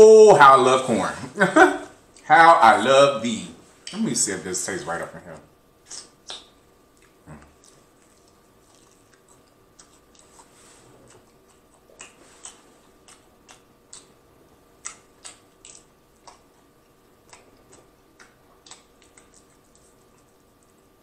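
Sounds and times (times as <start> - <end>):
wet mouth clicks: 5.9 - 10.4, 11.0 - 14.2, 14.8 - 16.5, 17.2 - 20.3
crunchy chewing: 5.9 - 21.0.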